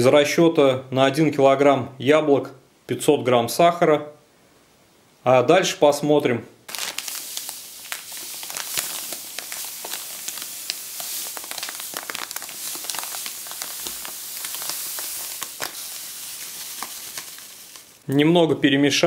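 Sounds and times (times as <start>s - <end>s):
sugar pouring into bowl: 6.7s - 18.0s.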